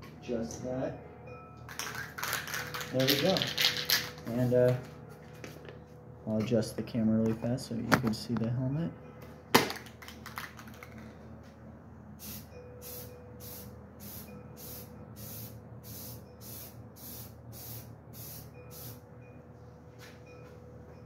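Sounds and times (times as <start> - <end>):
spray paint can hissing bursts: 12.2 - 19.0.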